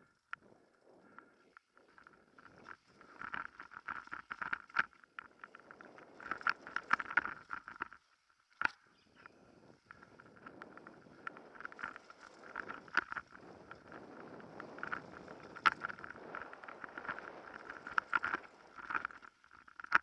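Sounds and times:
bike rattling and clattering: 9.8 - 20.0.

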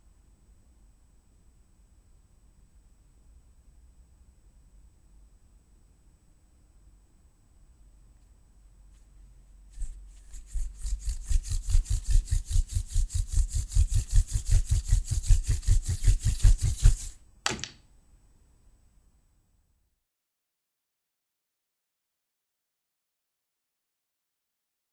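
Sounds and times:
stick rubbing between palms: 8.9 - 17.2.

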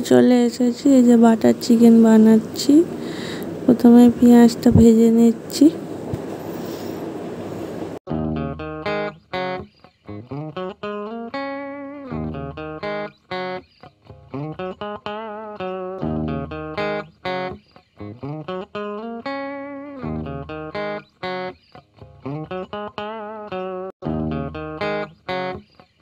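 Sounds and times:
plucked guitar melody: 8.1 - 26.0.

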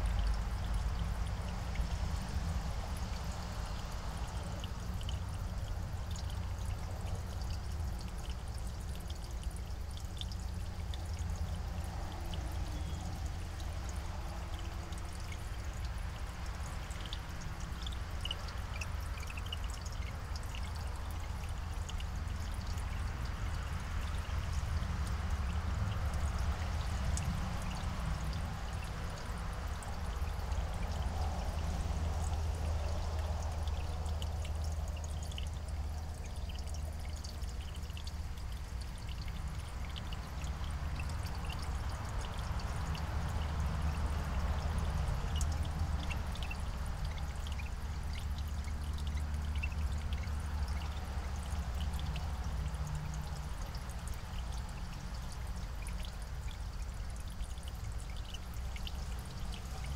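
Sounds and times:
low rumble with hiss: 0.0 - 59.9.

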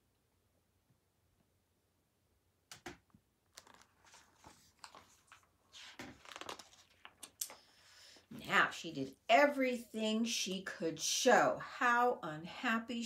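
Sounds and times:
book pages turning: 3.5 - 7.7.

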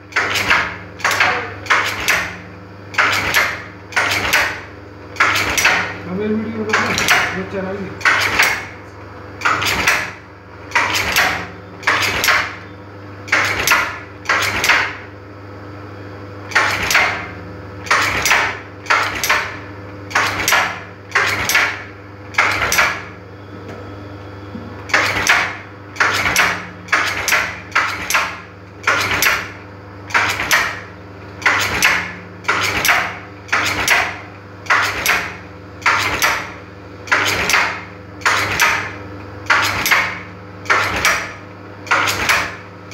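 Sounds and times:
low motor hum: 23.2 - 27.0.

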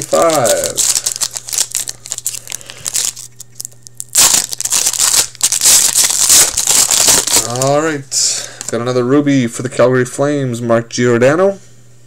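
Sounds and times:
wrapper crinkling and tearing: 0.0 - 8.7.

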